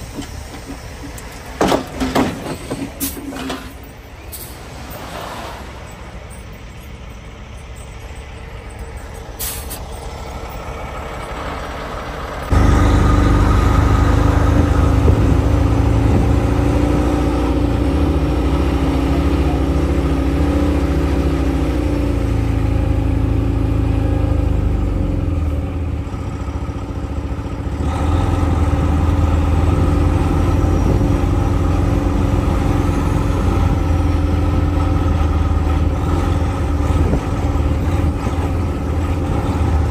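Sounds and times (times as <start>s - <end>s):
tyre noise on wet road: 0.0s - 7.6s
truck diesel engine droning: 0.0s - 39.9s.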